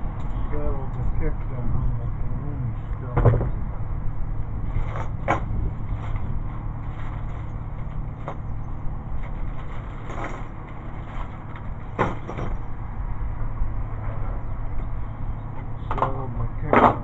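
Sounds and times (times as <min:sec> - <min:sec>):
steady low rumble: 0:00.0 - 0:17.0
plastic bag rustling: 0:04.7 - 0:08.5, 0:09.1 - 0:12.0.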